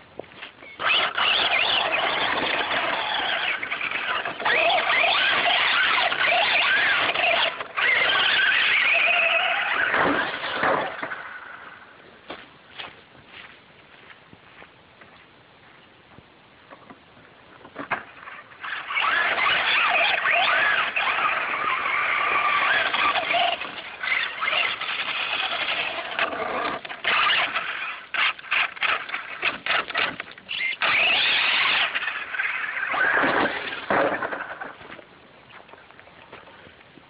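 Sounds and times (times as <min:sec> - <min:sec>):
electric motor whining: 0:00.6 - 0:11.8, 0:18.3 - 0:34.8.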